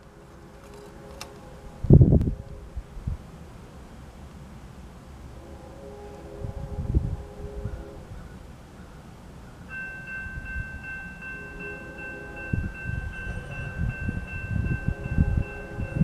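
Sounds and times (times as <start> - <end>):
railroad crossing bell ringing: 9.7 - 16.0.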